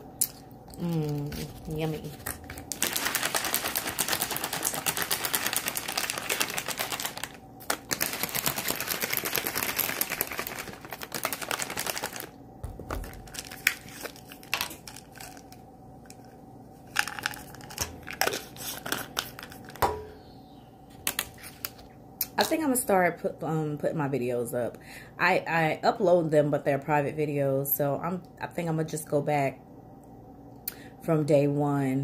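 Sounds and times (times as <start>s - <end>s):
plastic crinkling: 0.3s - 19.8s.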